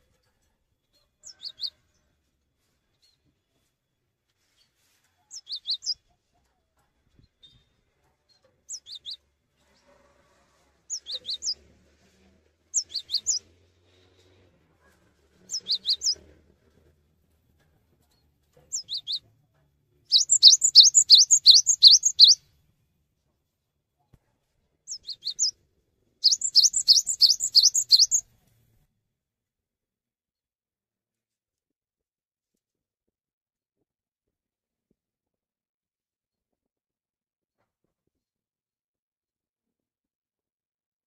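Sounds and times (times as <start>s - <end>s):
bird singing high whistled notes: 10.9s - 11.6s, 12.8s - 13.4s, 15.5s - 16.2s, 20.1s - 22.4s, 24.9s - 25.5s, 26.2s - 28.2s.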